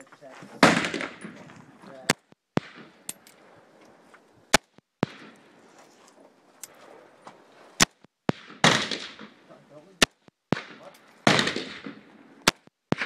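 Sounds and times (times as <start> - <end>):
rifle shots: 0.6 - 3.2, 4.5 - 5.6, 7.8 - 13.0.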